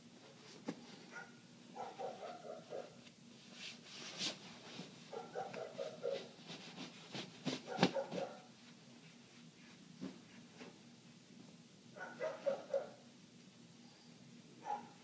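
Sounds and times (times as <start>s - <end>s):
muffled dog barking: 1.1s - 3.0s, 5.1s - 6.4s, 7.6s - 8.5s, 12.0s - 13.1s, 14.6s - 15.0s.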